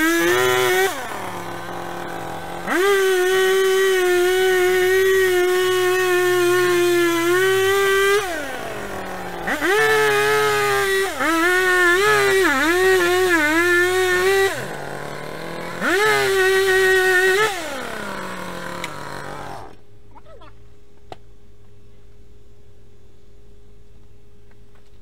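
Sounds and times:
chainsaw cutting wood: 0:00.0 - 0:19.8.

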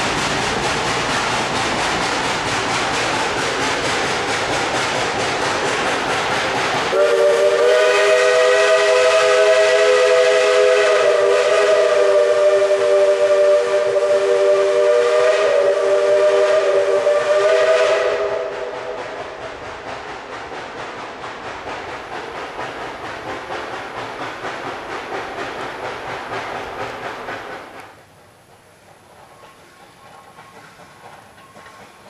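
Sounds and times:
train rumble and hiss: 0:00.0 - 0:32.0
steam locomotive chime whistle: 0:06.9 - 0:19.2.

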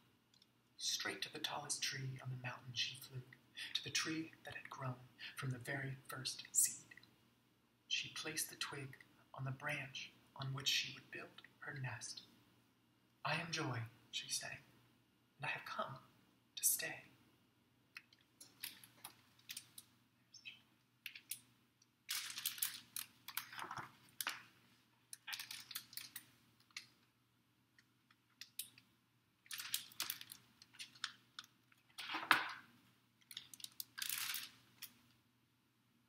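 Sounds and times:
book pages rustling and turning: 0:22.1 - 0:26.9, 0:29.5 - 0:35.1.

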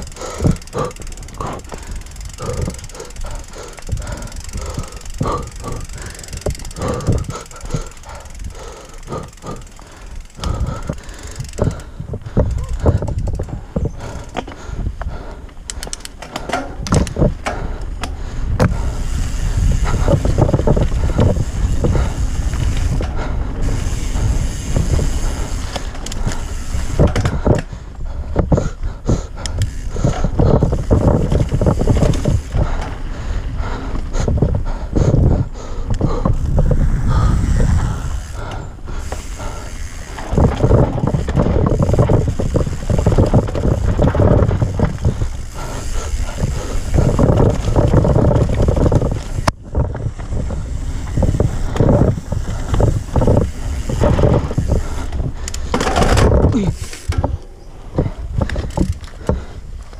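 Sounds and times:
bike parts clicking and knocking: 0:00.0 - 0:59.9
wind rumble on microphone: 0:00.0 - 0:59.9
tyres rolling over dirt: 0:39.0 - 0:59.4.

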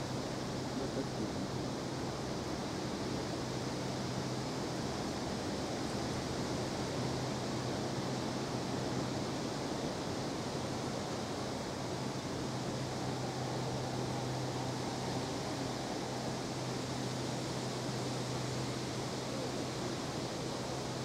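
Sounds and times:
low steady hum: 0:00.0 - 0:21.0
even hiss: 0:06.8 - 0:21.0.

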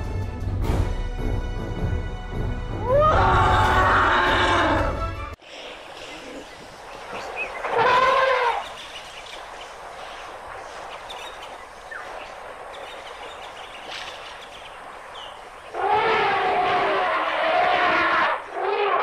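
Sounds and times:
elephant trumpeting: 0:02.8 - 0:05.0, 0:07.6 - 0:08.7, 0:15.7 - 0:19.0.

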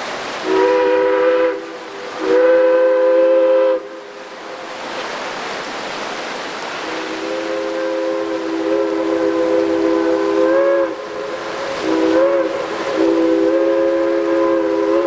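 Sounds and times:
rushing creek water: 0:00.0 - 0:15.0
steam locomotive whistle: 0:00.4 - 0:04.0, 0:06.9 - 0:15.0.

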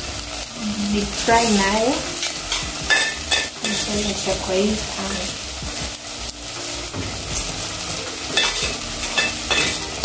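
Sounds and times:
food sizzling in a pot: 0:00.0 - 0:10.0
metal spoon scraping a frying pan: 0:08.3 - 0:10.0.

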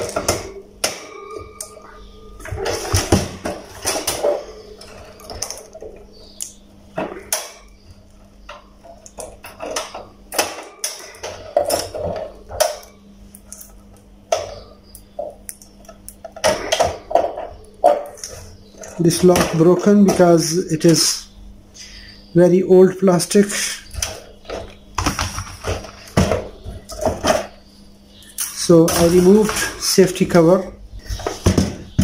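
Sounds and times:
faint steady hum: 0:00.0 - 0:32.0.

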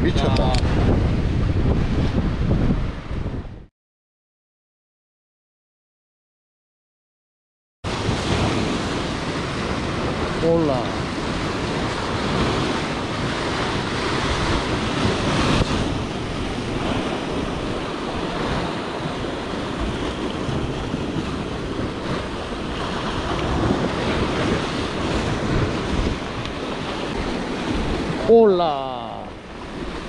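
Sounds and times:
wind buffeting microphone: 0:00.0 - 0:03.7, 0:07.9 - 0:28.5, 0:29.1 - 0:30.0
waves washing against rocks: 0:07.9 - 0:30.0.

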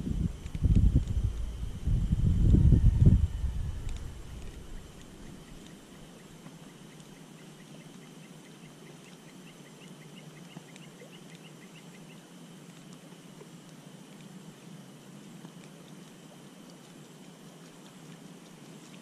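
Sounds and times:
faint outdoor background: 0:00.0 - 0:19.0
distant bird chirping: 0:02.6 - 0:12.0.

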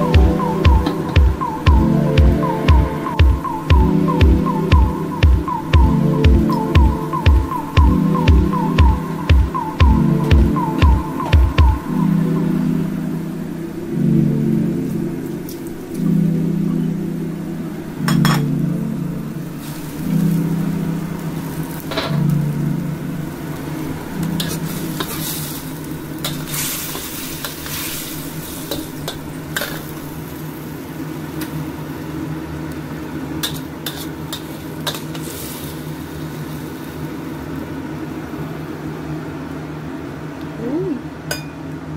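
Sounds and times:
low hum: 0:00.0 - 0:30.3
vegetables sizzling in a wok: 0:19.6 - 0:22.2, 0:23.4 - 0:38.7.

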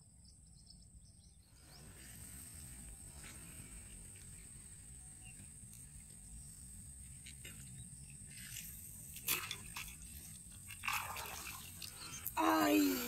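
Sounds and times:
insect drone: 0:00.0 - 0:13.0
fish splashing: 0:09.2 - 0:12.4.

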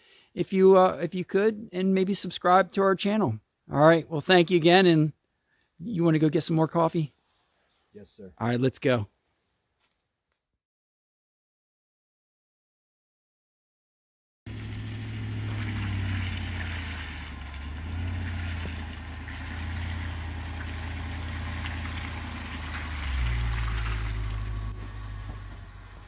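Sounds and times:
car engine humming: 0:14.5 - 0:26.0.

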